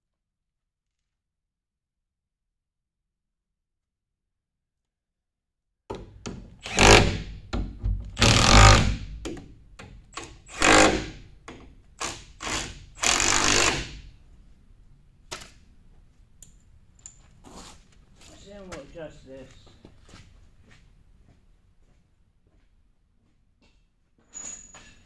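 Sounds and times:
impact wrench hammering bolts: 0:05.9 - 0:14.0.

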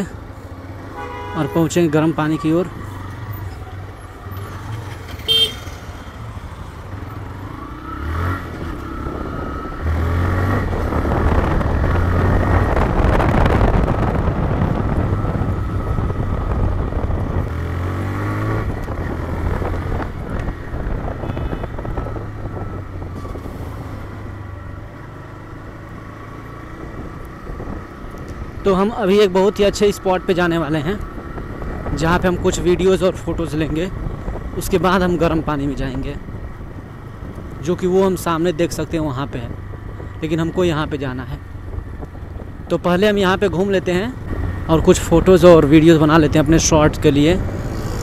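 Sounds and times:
road and wind rush: 0:00.0 - 0:48.0
horn toot: 0:00.9 - 0:01.8, 0:05.1 - 0:05.8.

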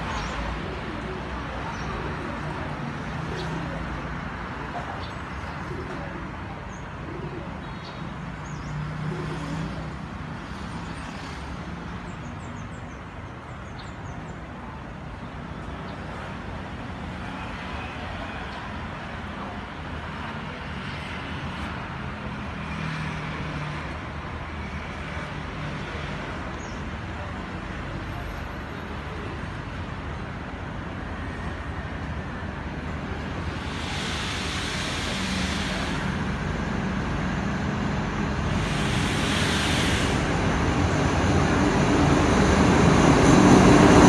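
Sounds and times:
road traffic rumble: 0:00.0 - 0:44.0
dove cooing: 0:05.6 - 0:07.6.

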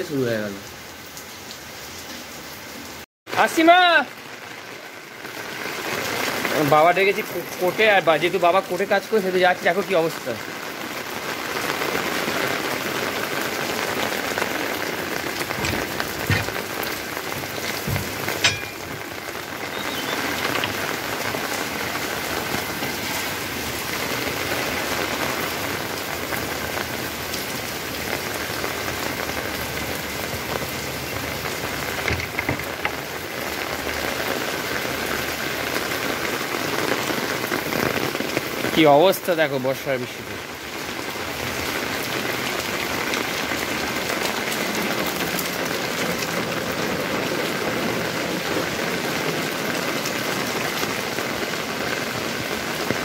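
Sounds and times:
heavy rain on pavement and rooftops: 0:00.0 - 0:53.0
sharp knock: 0:17.8 - 0:19.1.

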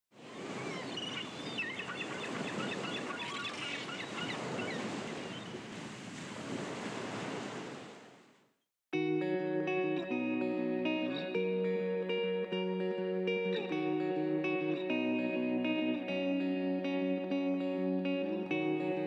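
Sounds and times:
wind: 0:00.1 - 0:08.6
waves washing: 0:00.2 - 0:08.3.

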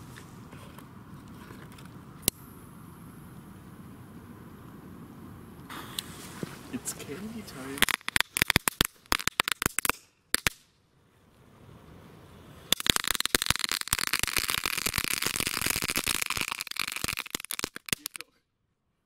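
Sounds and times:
rapid firecracker crackling: 0:05.7 - 0:10.7, 0:12.6 - 0:18.3.

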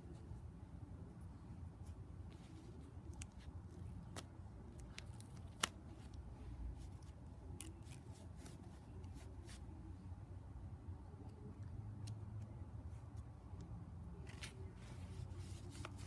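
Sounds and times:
paper cards rustling: 0:14.2 - 0:16.0.

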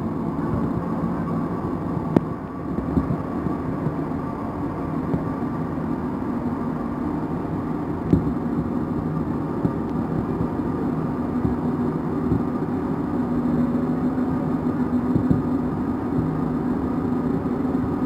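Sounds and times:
low hum: 0:00.0 - 0:18.0
train rumbling through tunnel: 0:00.0 - 0:18.0.

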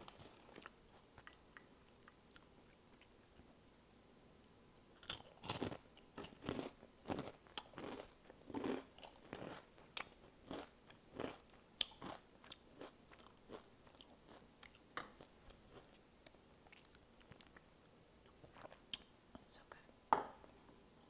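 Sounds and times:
chips crunching while chewed: 0:05.0 - 0:14.9.

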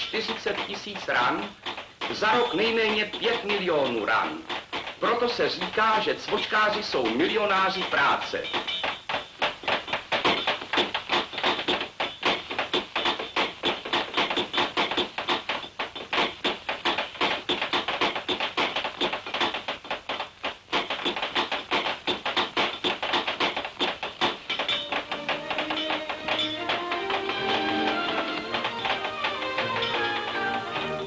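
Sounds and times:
hammer blows on anvil: 0:00.0 - 0:31.0
music: 0:20.9 - 0:31.0.

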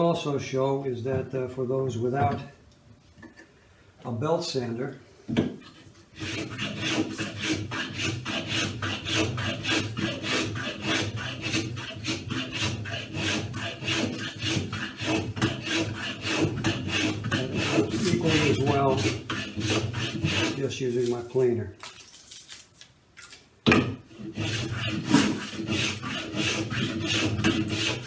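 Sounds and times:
hand plane scraping wood: 0:05.6 - 0:21.3, 0:24.1 - 0:28.0.

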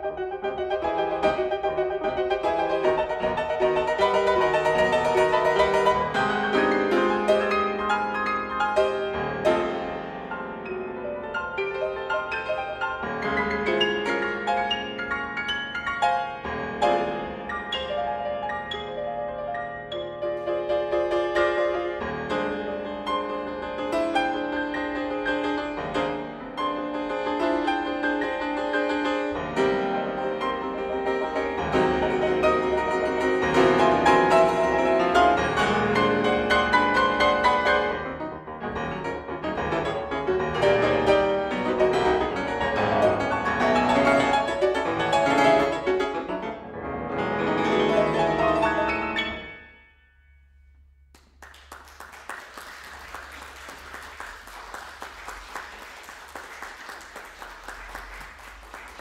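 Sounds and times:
grand piano classical piece: 0:00.0 - 0:59.0
audience applauding: 0:51.1 - 0:59.0.

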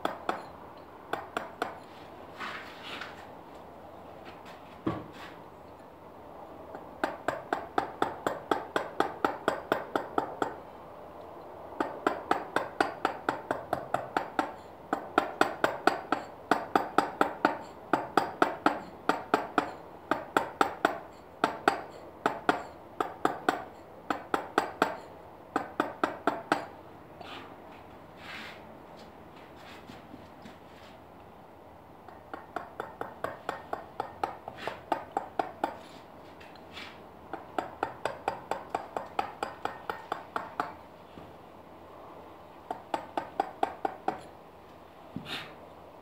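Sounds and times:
mallet tapping chisel on stone: 0:00.0 - 0:00.5, 0:01.1 - 0:01.8, 0:07.0 - 0:10.6, 0:15.2 - 0:26.7, 0:32.1 - 0:35.8, 0:37.6 - 0:40.8, 0:42.7 - 0:44.3.

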